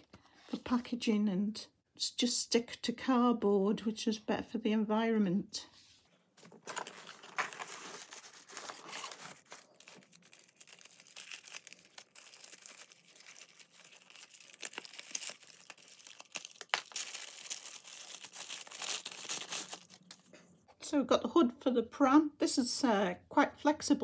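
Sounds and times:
cardboard and paper rustling: 6.4 - 20.3.

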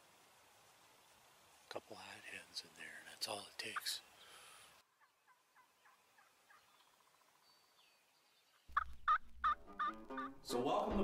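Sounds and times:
distant turkeys calling: 3.6 - 7.8, 8.5 - 10.4.

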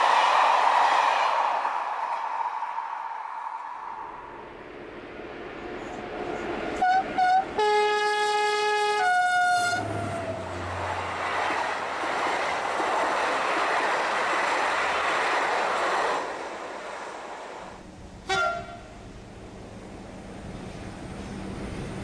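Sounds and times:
train wheels rumbling on rails: 3.5 - 22.0
locomotive horn: 6.8 - 10.6, 18.2 - 19.0.

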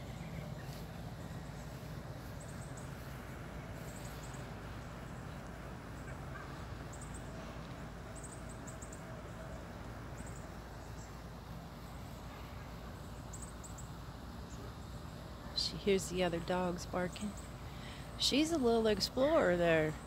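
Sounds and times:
low steady rumble: 0.0 - 20.0
distant dogs barking: 5.1 - 11.1.

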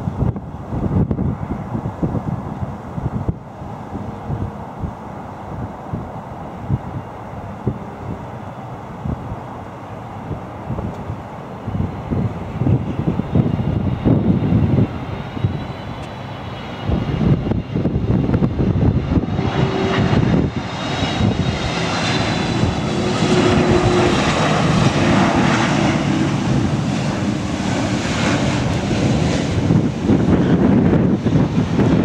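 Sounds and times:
jet roar with high whine: 0.0 - 32.0
wind buffeting microphone: 0.0 - 32.0.

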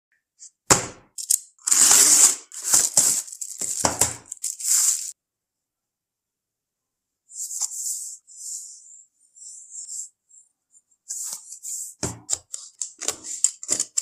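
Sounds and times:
paper envelope tearing and rustling: 1.2 - 5.2, 12.7 - 14.0
plastic packaging crinkling: 1.2 - 5.2.

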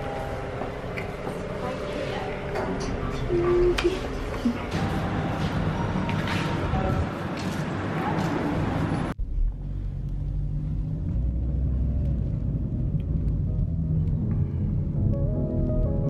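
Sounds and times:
car driving rumble: 8.6 - 15.8.

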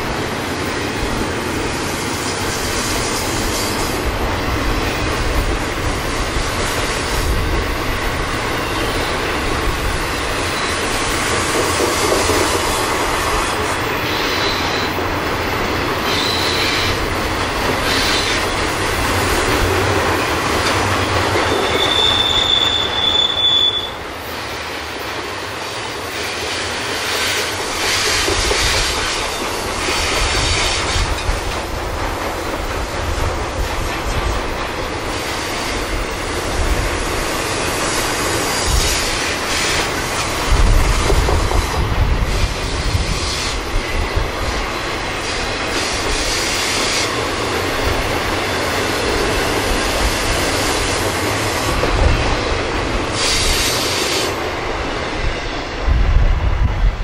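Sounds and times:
train rolling past: 0.0 - 57.0
wheel squeal: 16.0 - 17.0, 21.4 - 24.0.

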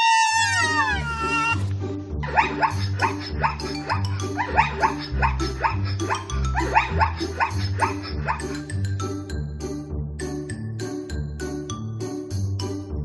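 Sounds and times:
animal-like calls: 0.0 - 1.6, 2.2 - 8.6
background music with bass line: 0.4 - 13.0.

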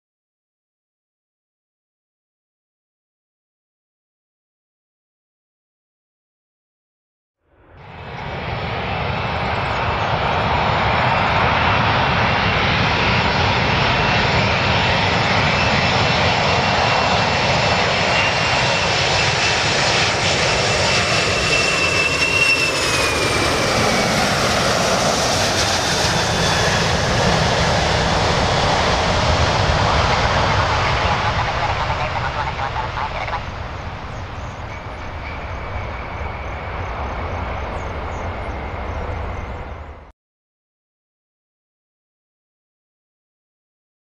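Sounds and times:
jet airliner roar and whine: 7.4 - 40.1.

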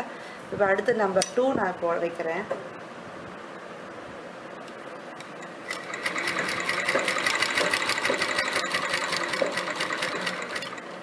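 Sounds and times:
sewing machine stitching: 5.2 - 10.9.

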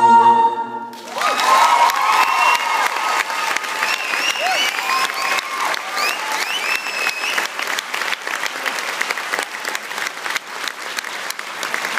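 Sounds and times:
audience clapping: 0.9 - 11.9
high gliding cheers: 1.0 - 7.7.

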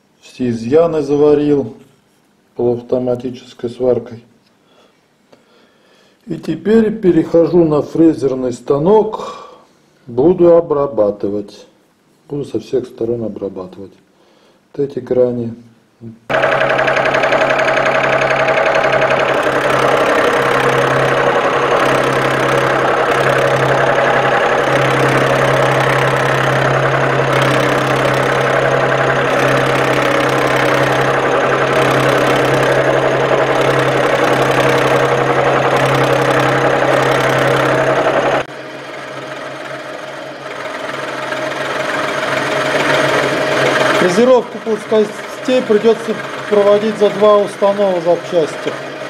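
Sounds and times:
milling machine cutting metal: 16.3 - 49.0.

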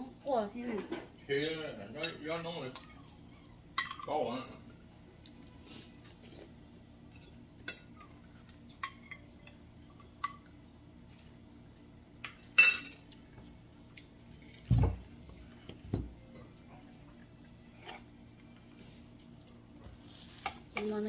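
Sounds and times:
spoon clinking against bowls: 12.2 - 13.1.

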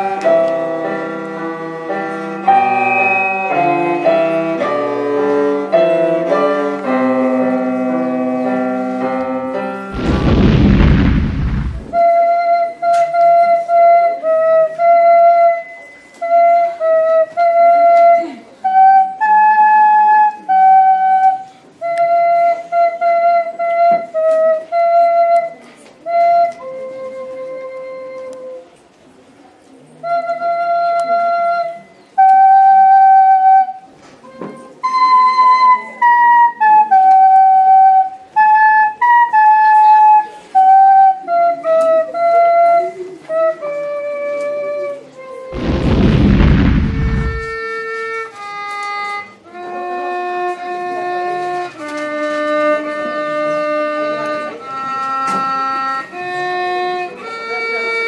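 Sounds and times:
loud rush of noise: 10.0 - 12.0, 45.6 - 47.6.

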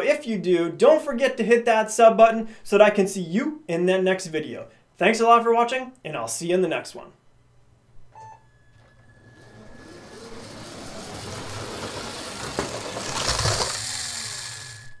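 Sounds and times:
small electric motor hum: 8.5 - 15.0
toy train wheels rattling on track: 9.0 - 15.0.

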